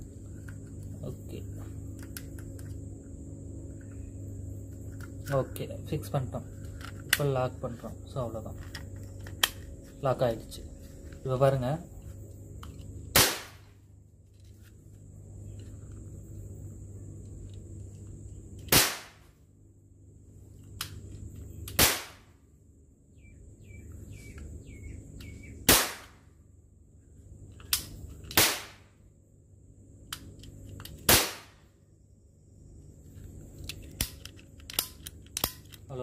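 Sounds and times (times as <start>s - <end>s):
cap gun bangs: 13.1s - 13.6s, 18.7s - 19.2s, 21.8s - 22.3s, 25.7s - 26.2s, 28.4s - 28.9s, 31.1s - 31.6s
cap gun clicks: 33.7s - 35.8s.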